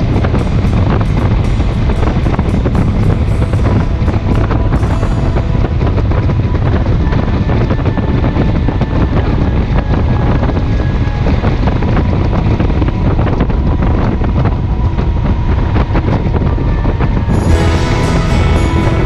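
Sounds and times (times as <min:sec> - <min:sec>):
motorcycle engine running: 0:00.0 - 0:08.0, 0:17.3 - 0:19.0
wind buffeting microphone: 0:00.0 - 0:19.0.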